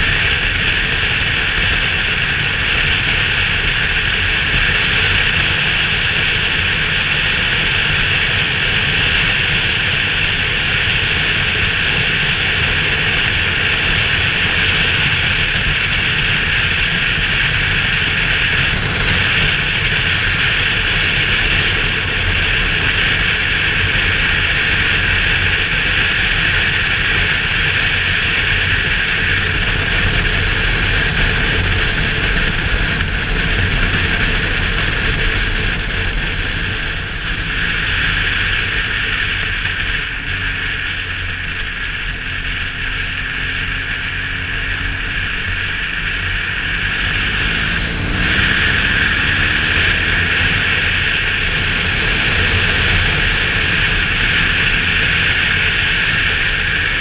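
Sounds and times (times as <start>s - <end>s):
motorcycle engine running: 0.0s - 57.0s
wind rushing over helmet: 17.5s - 22.1s.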